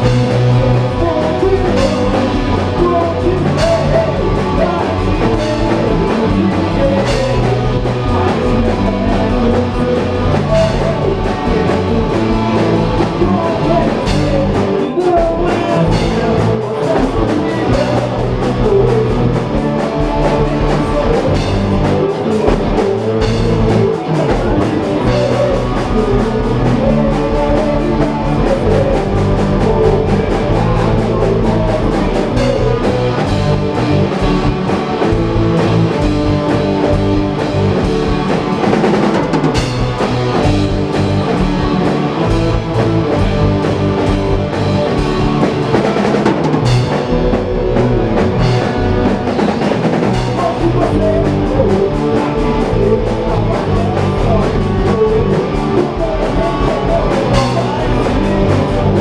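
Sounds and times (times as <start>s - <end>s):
rock band playing: 0.0s - 59.0s
sung vocal: 0.0s - 59.0s.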